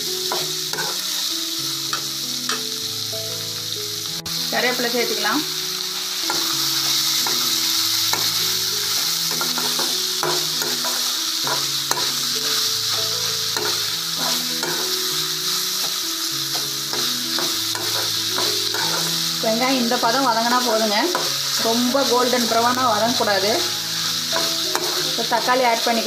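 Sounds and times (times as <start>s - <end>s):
vegetables sizzling in hot oil: 0.0s - 26.0s
metal spatula scraping pan: 0.3s - 1.1s, 6.2s - 25.9s.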